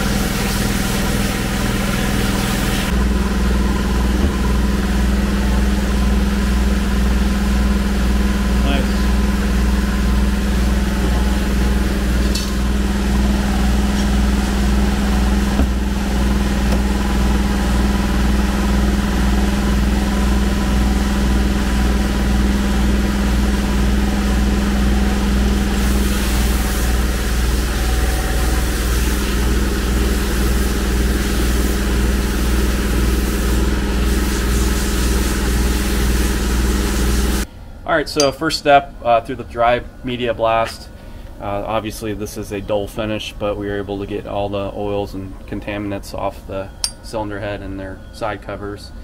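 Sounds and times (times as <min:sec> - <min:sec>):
machine hum: 0:00.0 - 0:49.0.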